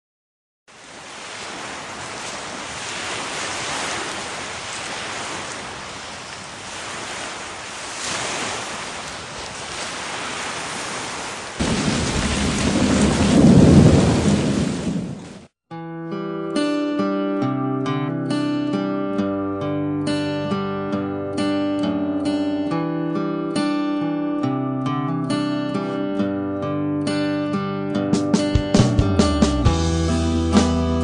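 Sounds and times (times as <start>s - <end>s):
steady rain falling: 11.0s - 15.5s
thunder rumble: 11.6s - 15.4s.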